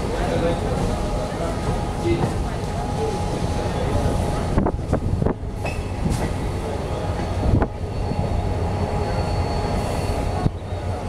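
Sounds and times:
train wheels rumbling on rail: 0:00.0 - 0:11.0
high wheel squeal: 0:07.8 - 0:11.0.

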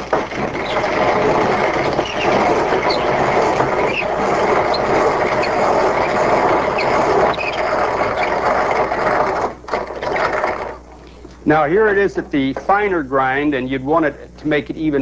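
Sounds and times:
hand grinder crunching corn: 0:00.0 - 0:10.8.

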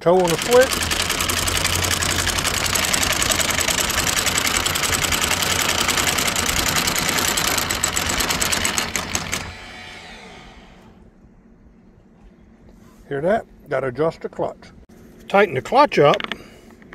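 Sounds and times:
anchor chain rattling: 0:00.0 - 0:09.5
windlass motor hum: 0:00.0 - 0:11.1.

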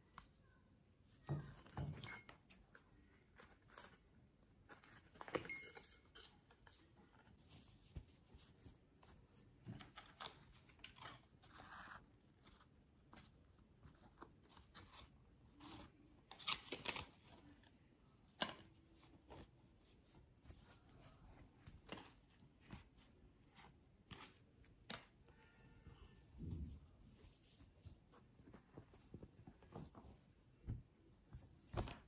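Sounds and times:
cloth rustling: 0:25.8 - 0:32.0.

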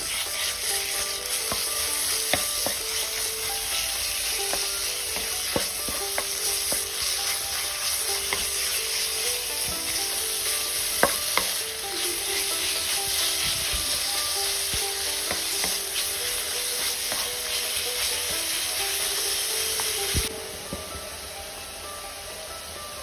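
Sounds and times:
wooden spatula scraping a pan: 0:00.0 - 0:20.3
meat sizzling in a frying pan: 0:00.0 - 0:20.4.

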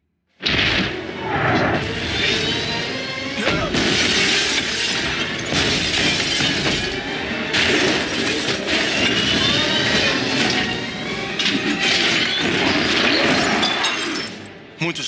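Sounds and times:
glass shattering: 0:03.5 - 0:10.8, 0:11.4 - 0:14.5.

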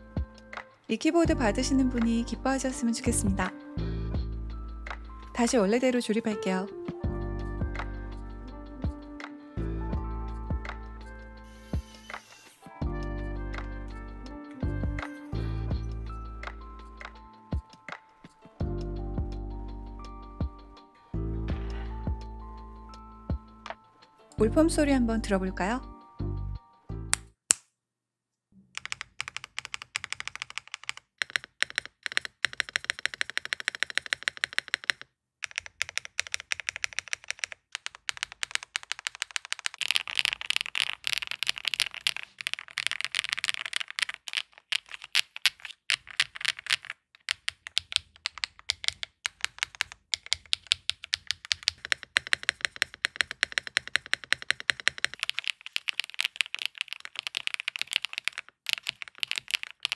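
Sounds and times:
fast typing on mechanical keyboard: 0:28.8 - 0:59.9.

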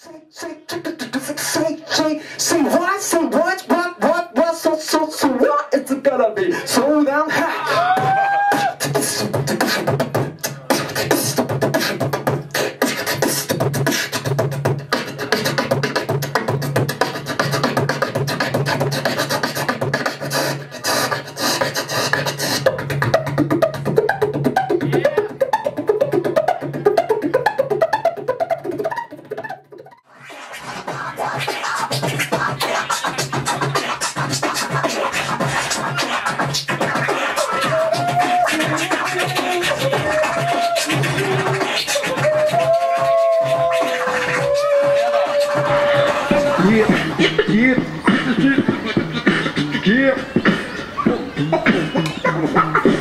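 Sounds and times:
beatboxing percussive clicks and snares: 0:00.0 - 0:53.0
hummed melody: 0:43.7 - 0:53.0.

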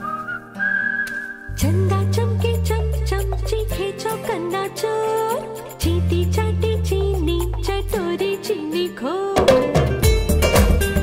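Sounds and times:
whistled tune: 0:00.0 - 0:01.7
bass line: 0:01.5 - 0:03.8
drum beat: 0:09.4 - 0:11.0.

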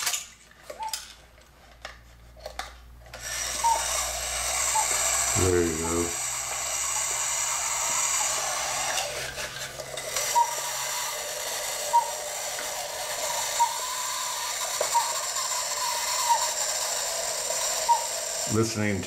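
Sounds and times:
clock movement clicking and whirring: 0:02.4 - 0:19.0.

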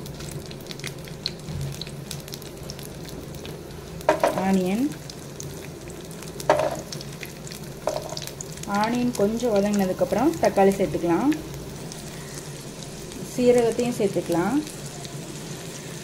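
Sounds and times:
food sizzling in oil: 0:00.0 - 0:16.0
shallots dropped into hot oil: 0:04.1 - 0:04.9, 0:06.5 - 0:07.0, 0:07.8 - 0:09.0.

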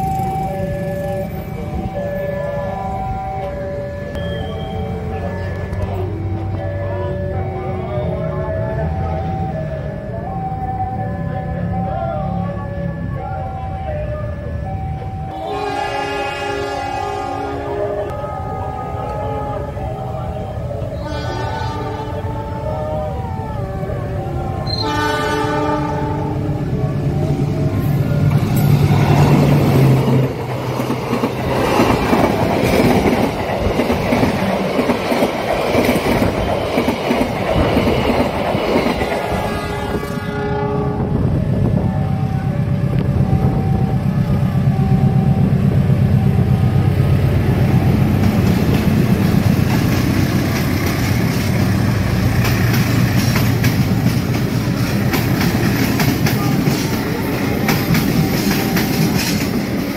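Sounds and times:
level-crossing bell dinging: 0:00.0 - 0:15.9, 0:41.4 - 0:47.8
locomotive engine rumble: 0:00.0 - 0:59.9
train horn: 0:15.3 - 0:26.8, 0:39.1 - 0:43.8
carriages clattering over rail joints: 0:47.8 - 0:59.9.

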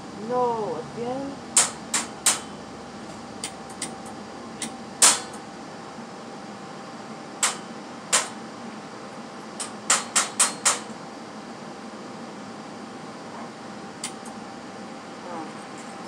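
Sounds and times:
welding arc crackling pops: 0:01.5 - 0:02.5, 0:03.4 - 0:05.5, 0:07.4 - 0:08.4, 0:09.6 - 0:11.0.

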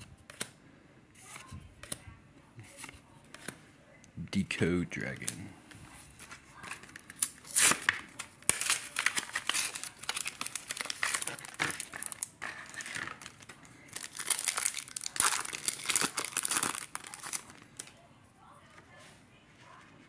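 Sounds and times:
plastic packaging crinkling: 0:06.1 - 0:18.0
foil wrapper tearing: 0:06.2 - 0:18.0.

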